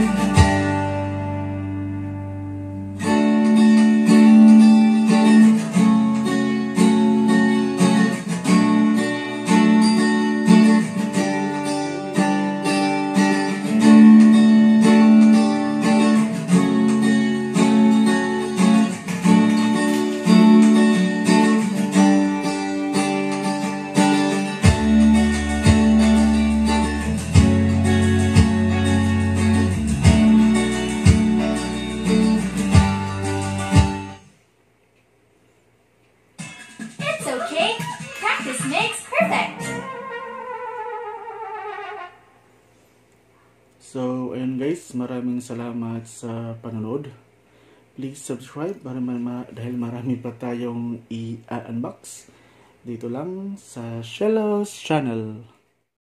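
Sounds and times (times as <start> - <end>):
bass line: 0.0 - 6.6, 23.9 - 34.2
strummed acoustic guitar: 0.0 - 34.3, 36.4 - 40.8.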